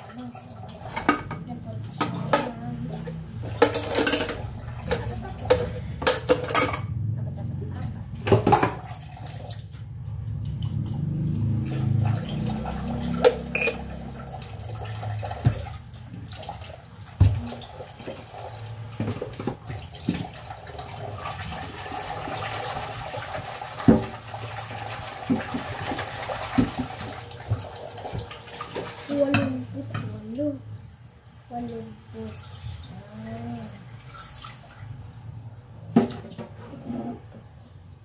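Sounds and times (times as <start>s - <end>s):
dishes clinking and knocking: 0.9s - 7.0s, 8.2s - 8.9s, 13.2s - 13.9s
faucet running into sink: 8.2s - 34.8s.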